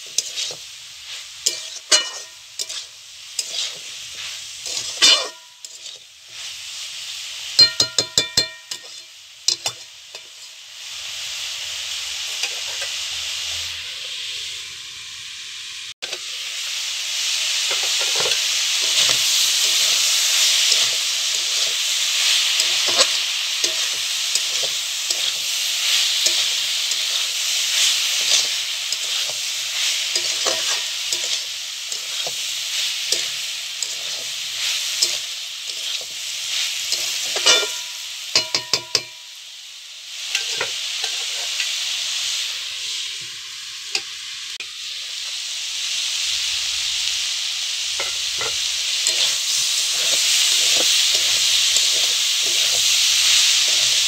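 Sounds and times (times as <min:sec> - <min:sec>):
spatula scraping metal pan: 0:00.0 - 0:00.6, 0:01.4 - 0:06.1, 0:07.6 - 0:10.3, 0:17.7 - 0:32.4, 0:33.1 - 0:34.3, 0:35.0 - 0:36.2, 0:36.9 - 0:39.1, 0:48.0 - 0:54.0
curry sizzling in a pan: 0:00.0 - 0:54.0
spatula knocking against pan: 0:07.6 - 0:08.7, 0:38.4 - 0:39.2.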